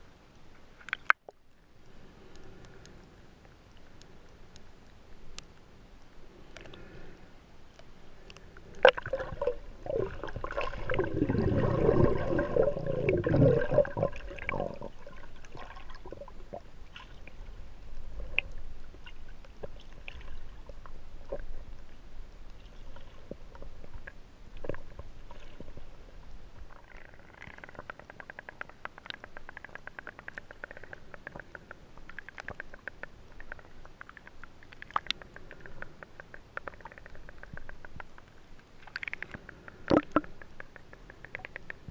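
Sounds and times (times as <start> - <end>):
scattered clicks and crackles: 0.6 - 6.9, 7.7 - 11.1, 18.2 - 41.9
underwater noise: 0.6 - 41.9
water gurgling and bubbling: 8.8 - 16.7, 39.9 - 40.3.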